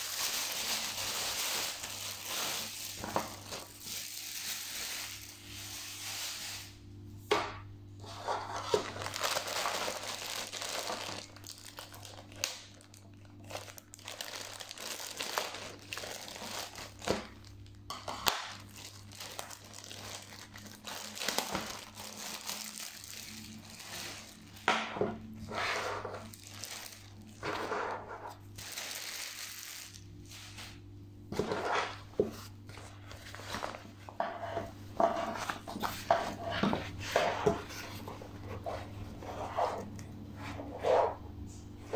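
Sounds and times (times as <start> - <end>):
plastic bag crinkling and tearing: 0.0 - 6.7, 8.5 - 24.7, 26.1 - 27.4, 28.3 - 30.8
low steady hum: 0.0 - 41.9.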